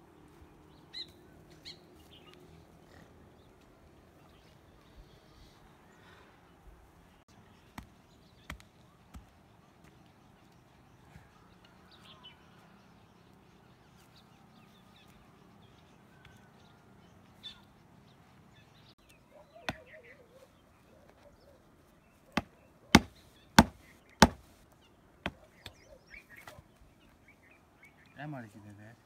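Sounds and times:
hatchet chopping sticks on wood: 0:22.4 - 0:24.5.

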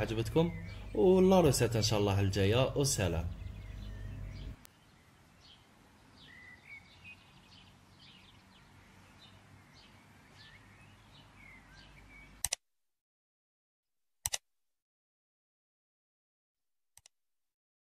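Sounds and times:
faint bird chirps: 0:00.0 - 0:02.0, 0:02.7 - 0:12.4
low steady hum: 0:00.0 - 0:06.1.

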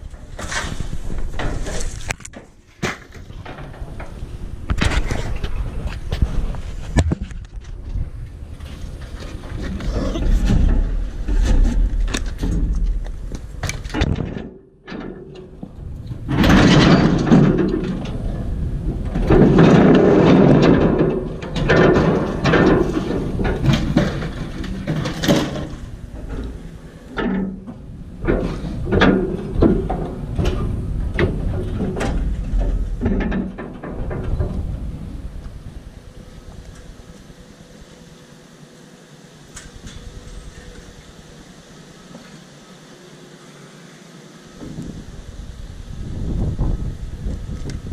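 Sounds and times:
scrap metal clanking and scraping: 0:00.0 - 0:07.8, 0:08.6 - 0:36.0.

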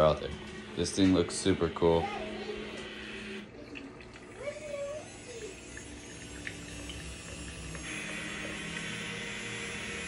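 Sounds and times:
milk frother motor whirring: 0:00.0 - 0:10.0.

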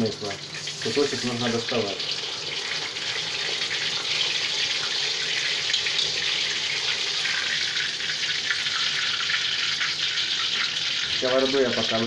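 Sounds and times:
meat sizzling in fat: 0:00.0 - 0:12.0.

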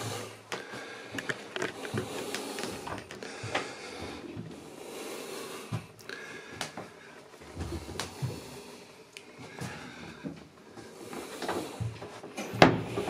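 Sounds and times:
handling clicks and knocks: 0:01.2 - 0:03.2.

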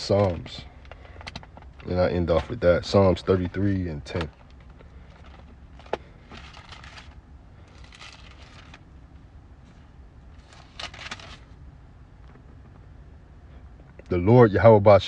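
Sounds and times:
low hum: 0:00.0 - 0:15.0
paper pages rustling: 0:04.1 - 0:08.8, 0:10.4 - 0:11.6.

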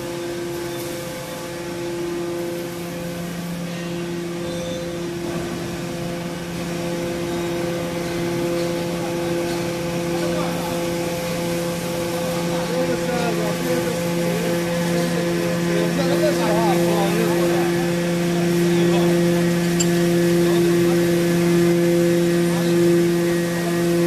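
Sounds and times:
hydraulic unit droning hum: 0:13.5 - 0:24.0.

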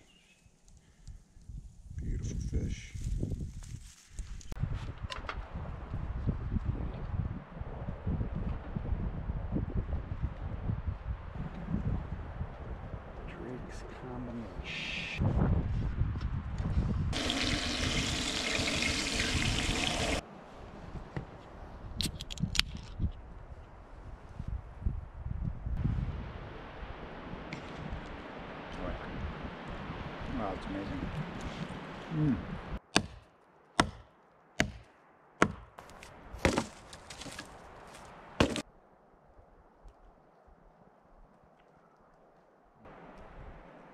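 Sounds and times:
quiet outdoor background: 0:00.0 - 0:43.9
fish sizzling in oil: 0:17.2 - 0:20.2
hatchet chopping branches: 0:32.9 - 0:37.6, 0:38.4 - 0:38.6
wood cracking and splintering: 0:35.8 - 0:38.6.

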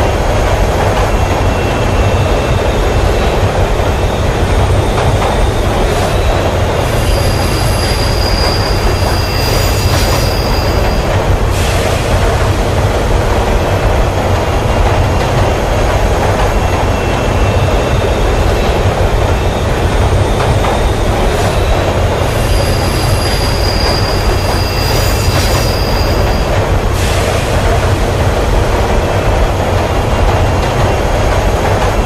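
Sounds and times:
subway train rumbling: 0:00.0 - 0:32.0
high wheel squeal: 0:06.0 - 0:11.8, 0:21.4 - 0:26.6.

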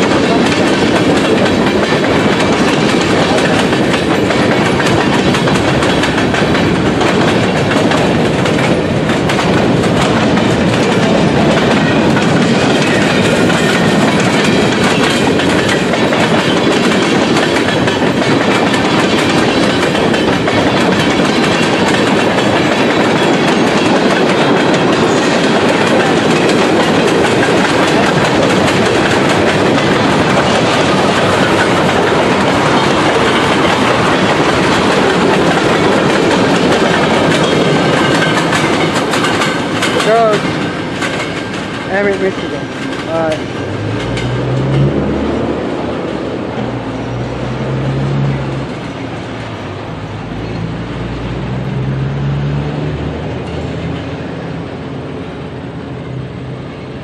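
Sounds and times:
train wheels on rails: 0:00.0 - 0:57.0.

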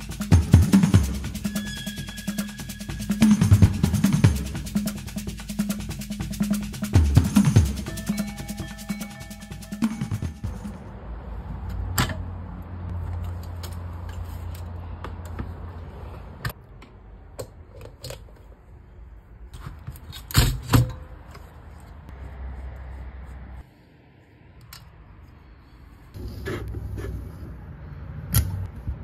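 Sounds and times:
metal parts clicking and clunking: 0:12.9 - 0:15.6, 0:19.6 - 0:21.9.

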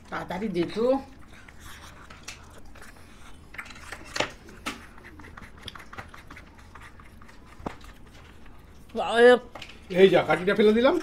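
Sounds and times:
soft mouth sounds: 0:01.4 - 0:08.8.

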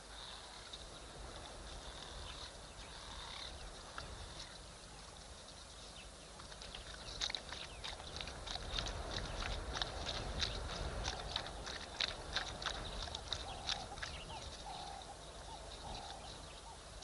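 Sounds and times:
dogs lapping water: 0:06.3 - 0:17.0.

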